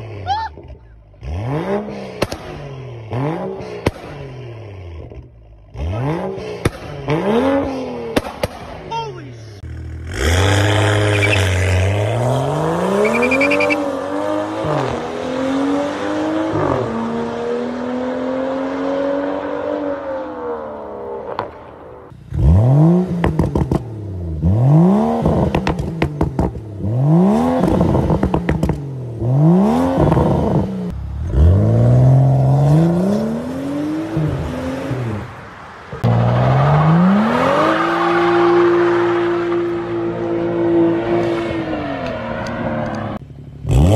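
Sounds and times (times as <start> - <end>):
car engine accelerating: 9.6 - 43.9
sharp engine revs: 9.9 - 19.2.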